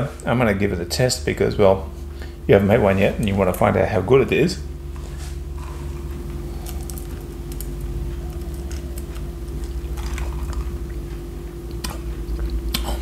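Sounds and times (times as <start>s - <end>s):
steady low hum: 0.0s - 13.0s
person sipping a drink: 5.0s - 11.1s.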